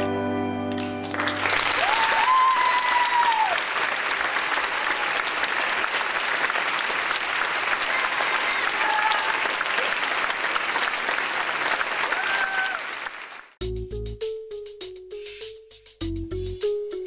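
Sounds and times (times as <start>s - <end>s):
orchestral chord: 0.0s - 1.4s
audience applauding: 0.7s - 13.6s.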